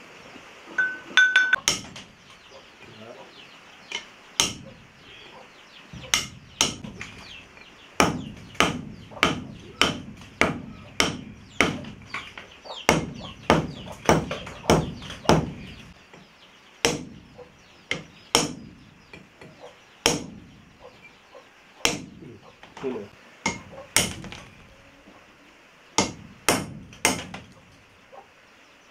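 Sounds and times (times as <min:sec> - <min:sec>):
hammer striking chisel on stone: 0:01.2 - 0:02.0, 0:06.0 - 0:06.9, 0:08.0 - 0:12.3, 0:21.8 - 0:22.2, 0:23.4 - 0:24.4, 0:26.0 - 0:27.5.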